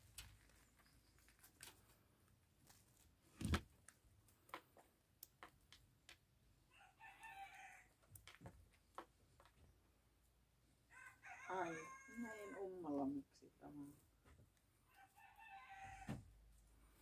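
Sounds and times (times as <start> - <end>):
thump: 16.0 - 16.3.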